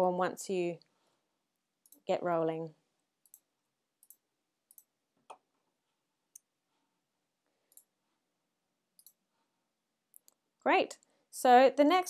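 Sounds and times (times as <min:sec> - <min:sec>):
computer mouse clicks: 0:03.2 - 0:05.4, 0:09.0 - 0:09.2.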